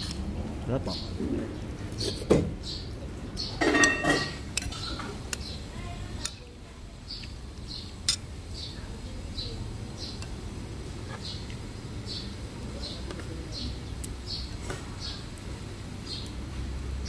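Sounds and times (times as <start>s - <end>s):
metal spoon clinking ceramic bowl: 3.6s - 4.8s.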